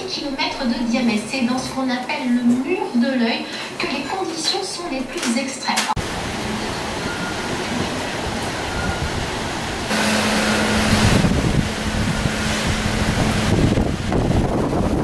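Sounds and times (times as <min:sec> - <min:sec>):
wind buffeting microphone: 0:07.0 - 0:15.0.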